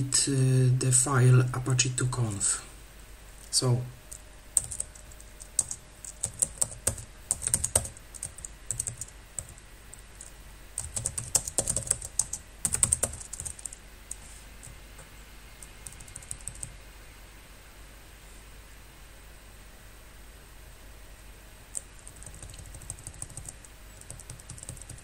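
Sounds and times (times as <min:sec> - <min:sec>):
keyboard typing: 0:04.6 - 0:15.1, 0:15.8 - 0:16.8, 0:21.7 - 0:25.0.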